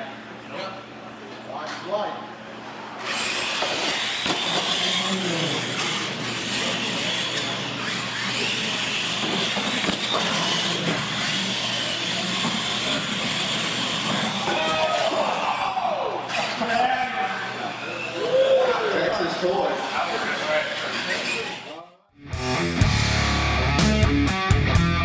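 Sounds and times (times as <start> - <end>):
toy truck electric motors whining: 3.0 - 15.6, 16.3 - 18.3, 18.9 - 21.8.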